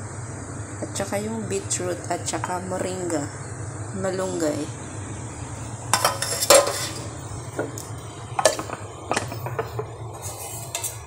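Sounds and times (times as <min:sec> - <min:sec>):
low steady hum: 0:00.0 - 0:11.0
dishes clinking on stone countertop: 0:05.9 - 0:09.9.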